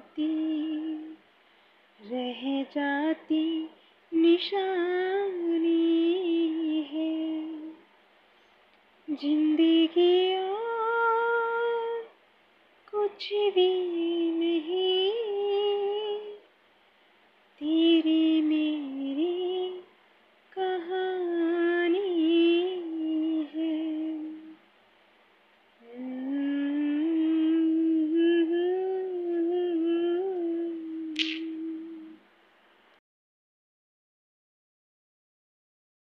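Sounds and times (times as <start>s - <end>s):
woman singing unaccompanied: 0.0s - 1.3s, 2.0s - 7.9s, 9.1s - 12.2s, 12.9s - 16.5s, 17.6s - 24.6s, 25.8s - 32.2s.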